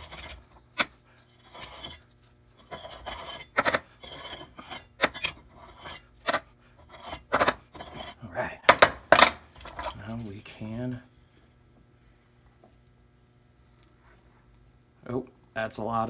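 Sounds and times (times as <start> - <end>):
metal spoon scraping: 0.0 - 8.2, 9.6 - 11.0.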